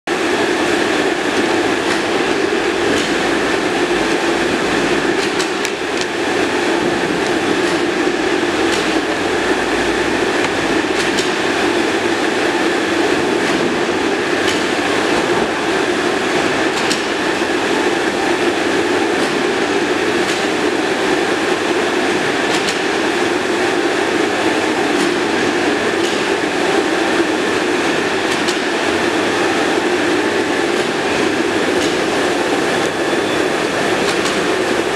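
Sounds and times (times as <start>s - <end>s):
steady mechanical drone: 0.1s - 34.9s.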